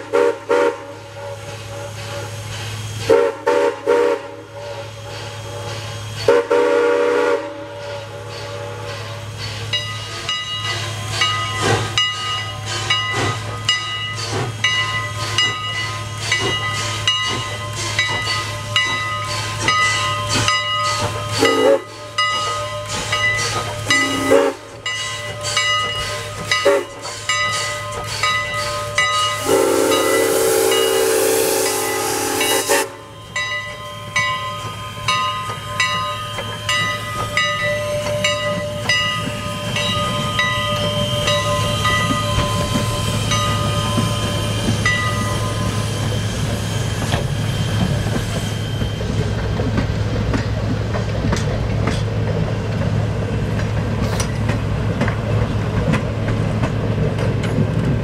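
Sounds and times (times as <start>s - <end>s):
steam whistle blasts: 0.0s - 1.5s, 3.0s - 4.9s, 5.5s - 8.9s, 21.4s - 22.0s, 23.8s - 24.7s, 26.6s - 26.9s, 29.4s - 33.3s
steam exhaust: 0.0s - 10.2s, 21.0s - 33.4s
rhythmic metallic ringing: 7.8s - 31.0s, 32.4s - 48.9s.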